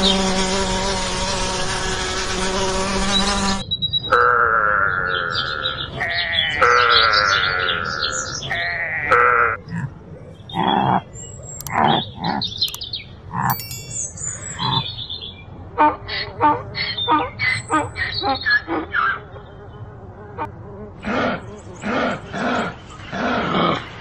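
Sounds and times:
animal bleating: 6.0 - 9.6
high chirps: 13.5 - 14.9.

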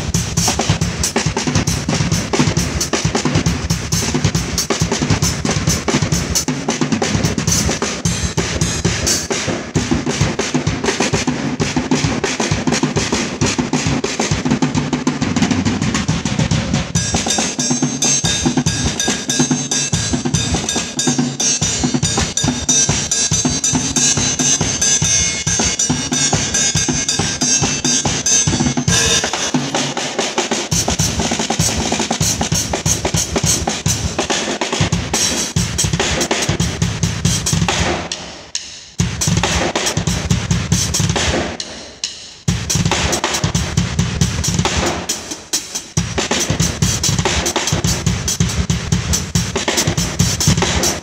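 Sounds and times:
acoustic drum kit solo: 0.0 - 51.0
cymbals washing: 17.0 - 34.3.

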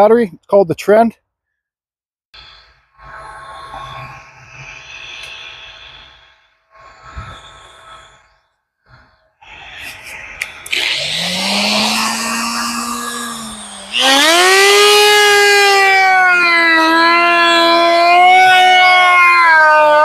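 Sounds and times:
die grinder cutting into wood: 9.6 - 19.4.

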